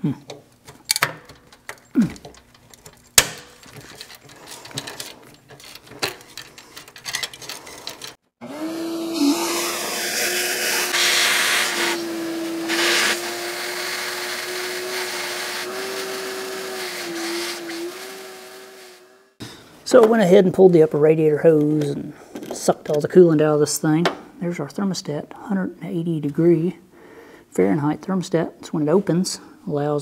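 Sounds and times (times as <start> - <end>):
shop vacuum whining: 7.5 - 19.4.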